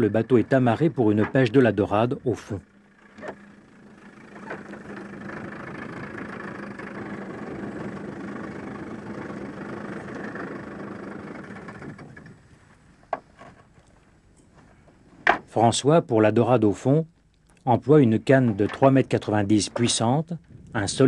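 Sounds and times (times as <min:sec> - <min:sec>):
outboard motor running: 0:00.0 - 0:13.4.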